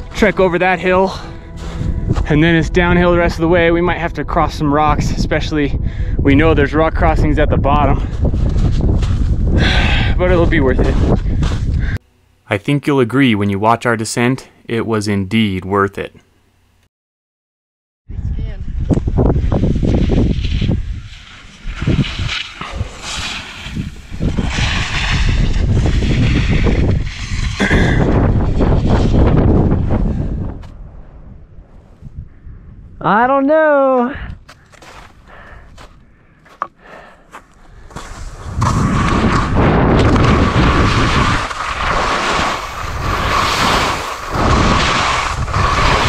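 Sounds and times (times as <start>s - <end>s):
wind buffeting microphone: 0.0s - 12.0s, 18.1s - 33.0s, 38.0s - 46.0s
skis scraping on snow: 19.7s - 29.2s, 37.9s - 46.0s.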